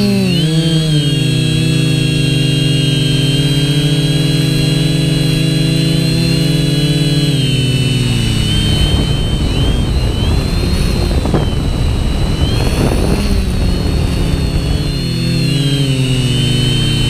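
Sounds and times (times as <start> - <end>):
drone motors whining: 0.0 - 17.0
wind noise on microphone: 0.0 - 17.0.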